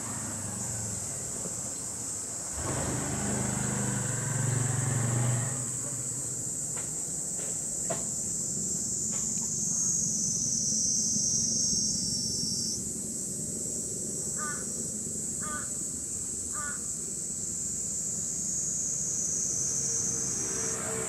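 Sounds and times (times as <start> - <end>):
high-pitched hiss: 6.0 - 21.0
bird calling: 14.4 - 14.8, 15.4 - 15.8, 16.5 - 16.9.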